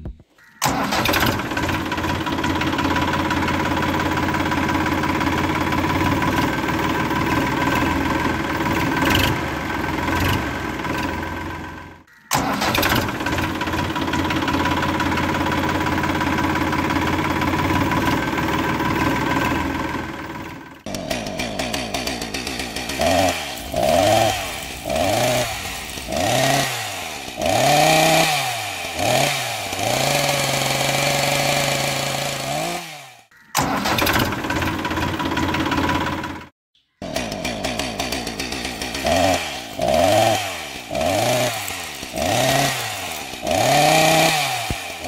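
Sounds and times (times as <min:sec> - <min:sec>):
engine running with pulsing rumble: 0:00.0 - 0:30.9.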